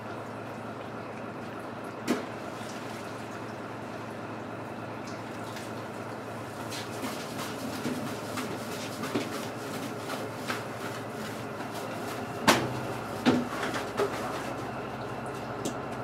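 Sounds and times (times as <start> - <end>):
wet rope knocking and slapping: 6.8 - 14.4.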